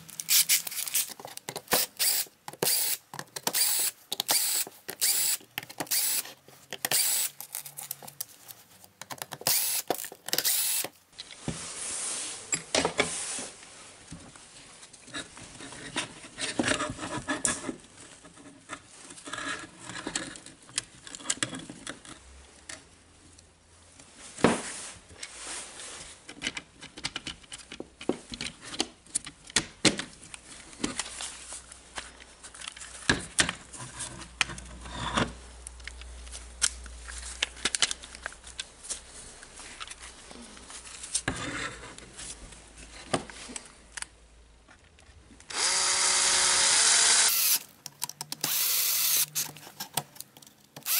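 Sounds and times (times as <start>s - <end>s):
gloved hands rustling: 0.0s - 10.6s.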